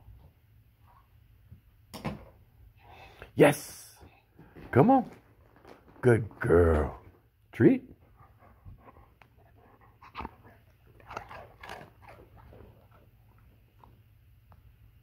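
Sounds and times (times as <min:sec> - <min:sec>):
dog crunching a treat: 0:05.1 - 0:07.0, 0:10.0 - 0:14.1.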